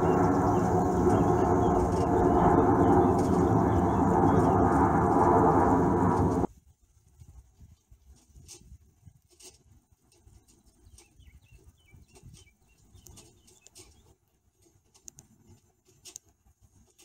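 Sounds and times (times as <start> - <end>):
low uneven rumble: 0.0 - 6.5
small bird chirping: 10.4 - 14.2.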